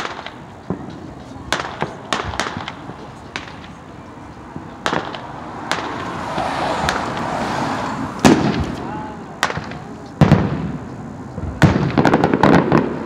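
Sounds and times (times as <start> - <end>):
fireworks bursting: 0.0 - 13.0
rising rush of noise: 4.1 - 10.0.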